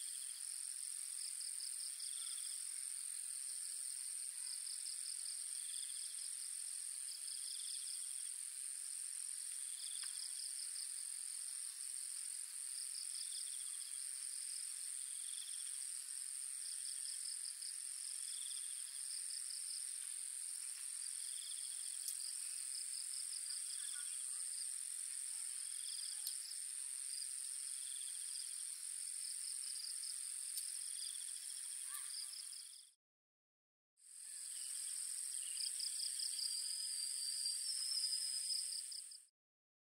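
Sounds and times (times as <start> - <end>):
crickets trilling: 0.0 - 32.8, 34.2 - 39.2
soft insect chirp: 0.0 - 33.0, 34.1 - 39.3
high-pitched insect drone: 13.0 - 32.9, 34.2 - 39.2.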